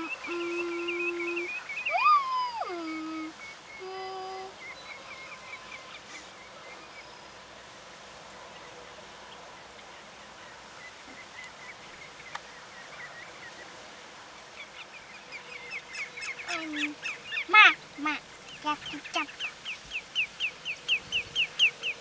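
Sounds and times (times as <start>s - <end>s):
waterbirds calling: 0.0s - 7.7s, 8.5s - 22.0s
water: 0.0s - 22.0s
wind: 0.0s - 22.0s.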